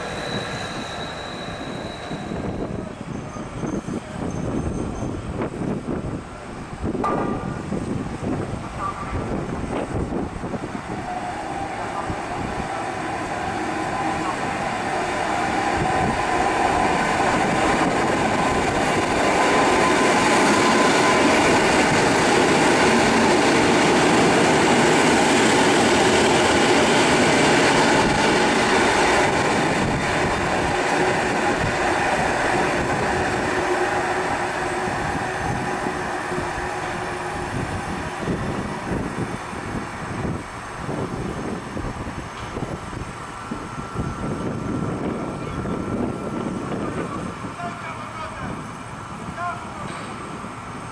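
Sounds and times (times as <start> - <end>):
train wheels on rail: 0.0 - 50.9
train motor whine: 24.2 - 47.9.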